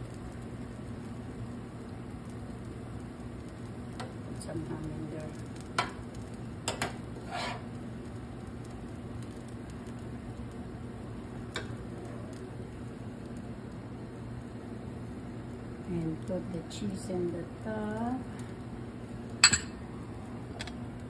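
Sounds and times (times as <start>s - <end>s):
omelette sizzling in a frying pan: 0.0s - 21.0s
spoon scraping pan: 6.7s - 7.8s.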